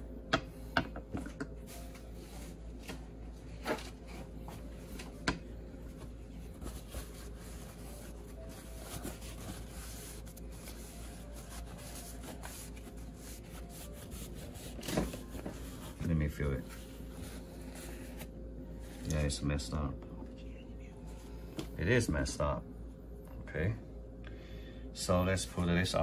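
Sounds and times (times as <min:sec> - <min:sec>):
paper towel rustling: 0:05.9 - 0:19.0.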